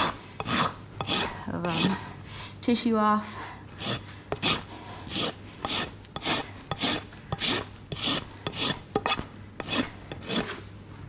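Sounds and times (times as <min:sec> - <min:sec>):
hoof rasp scraping hoof: 0:00.0 - 0:02.1, 0:03.8 - 0:10.7.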